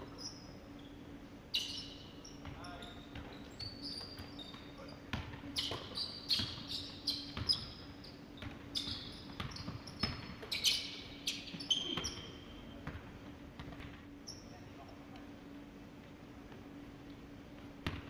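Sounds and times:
sneakers squeaking on floor: 0.0s - 14.8s
basketball bouncing on hardwood floor: 5.1s - 6.6s, 7.3s - 7.7s, 8.4s - 10.4s, 12.8s - 14.0s.

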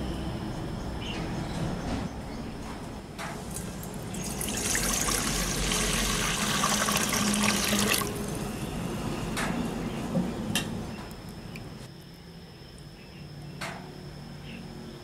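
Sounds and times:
water pouring into a metal bowl: 3.5s - 8.4s.

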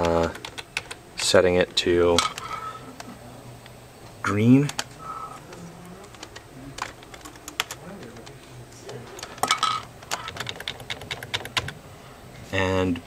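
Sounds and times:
computer keyboard typing: 0.0s - 1.0s, 4.6s - 9.4s, 10.0s - 11.8s.

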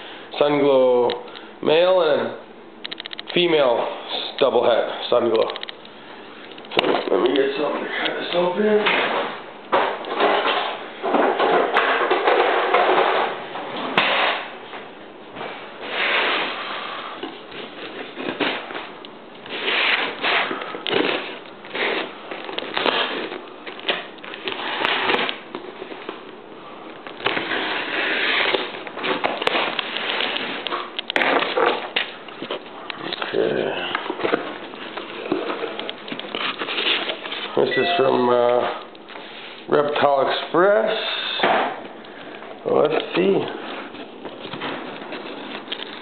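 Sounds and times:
sharp clicks: 2.8s - 3.4s.

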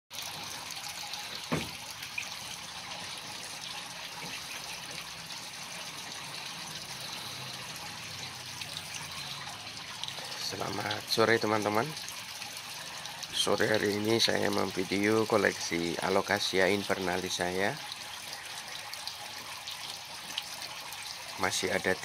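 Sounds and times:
short knock: 1.5s - 1.8s
water hissing: 6.6s - 10.6s.

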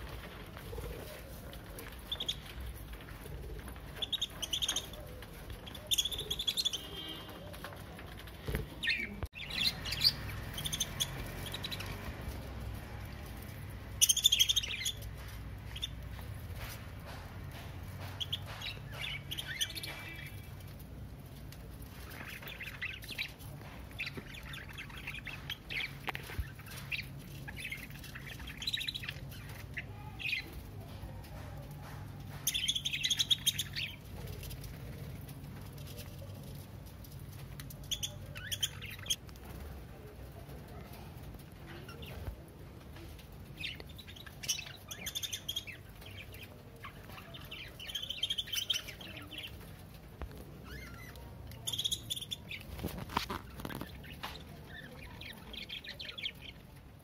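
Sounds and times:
budgerigars chirping and chattering: 3.8s - 7.8s, 8.5s - 12.5s, 14.0s - 20.7s, 22.0s - 30.6s, 31.8s - 34.1s, 37.8s - 39.2s, 43.4s - 56.7s.

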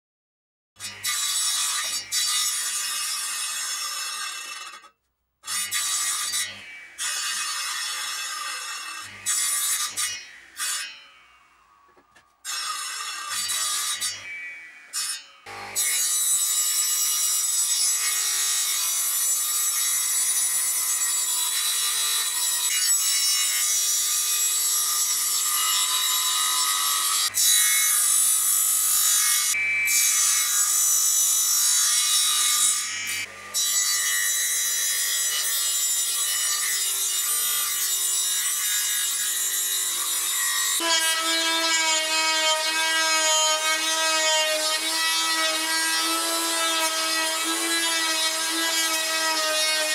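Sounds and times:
table saw cutting wood: 0.8s - 49.9s.

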